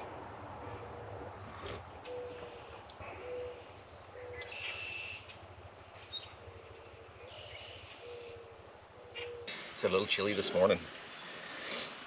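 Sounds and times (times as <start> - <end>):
higher bird calls: 0.6 - 9.8
sharp bird chirp: 4.2 - 5.3.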